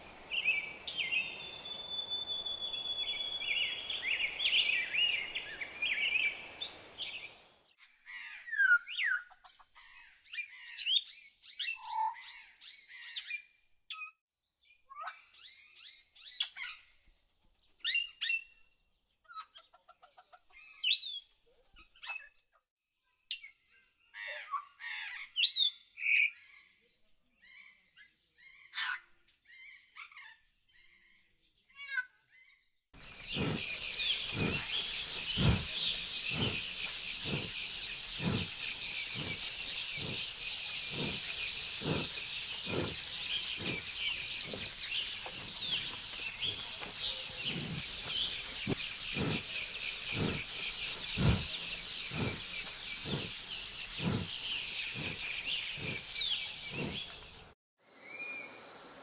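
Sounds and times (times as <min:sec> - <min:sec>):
small birds chirping: 0:00.0 - 0:22.5, 0:23.3 - 0:59.0
steady hissing ambience: 0:33.0 - 0:56.0.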